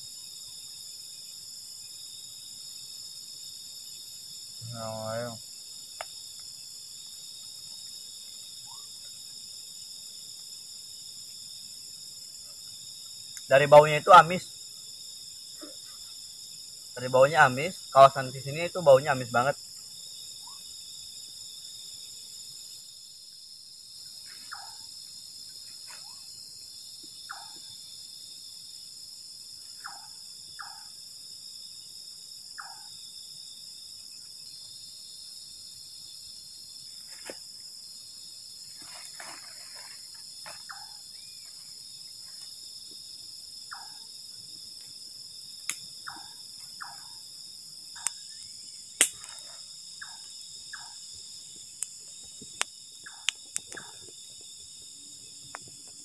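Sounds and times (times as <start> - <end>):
crickets trilling: 0.0 - 56.0
insect chirping calls: 0.0 - 56.0
campfire crackling: 0.8 - 20.1, 44.4 - 56.0.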